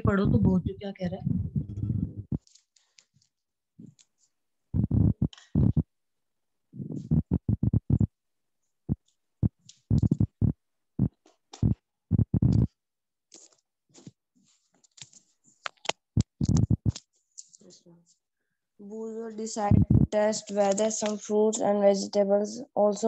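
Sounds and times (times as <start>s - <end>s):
muffled distorted voice: 0.0s - 2.3s, 19.6s - 20.8s.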